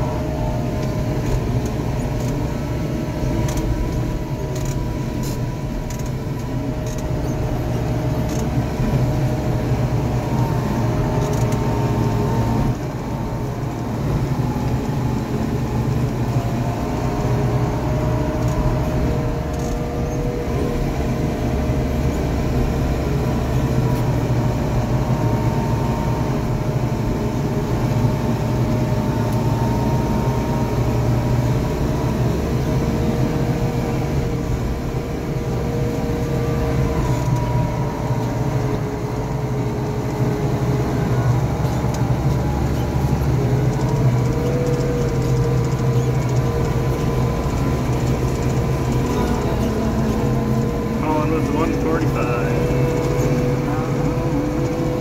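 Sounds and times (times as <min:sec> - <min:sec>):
engine whine: 0:00.0 - 0:55.0
tractor diesel engine running: 0:00.0 - 0:55.0.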